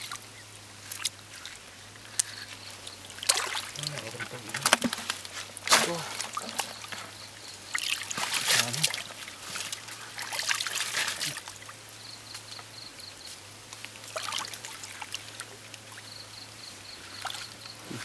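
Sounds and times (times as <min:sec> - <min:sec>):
hands splashing in muddy puddle: 0:03.2 - 0:07.0, 0:07.8 - 0:11.6.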